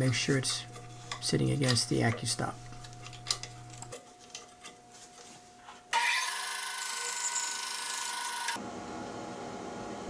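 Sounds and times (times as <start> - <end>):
band saw whine: 5.9 - 8.6.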